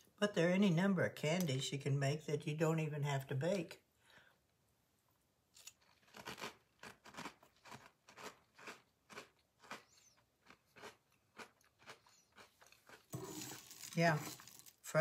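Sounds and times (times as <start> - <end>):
person chewing crunchy cereal: 5.6 - 14.9.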